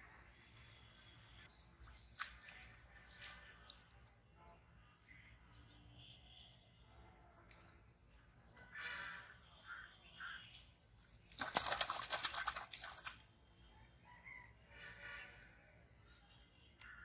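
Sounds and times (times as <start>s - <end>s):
fish splashing in water: 11.2s - 13.3s.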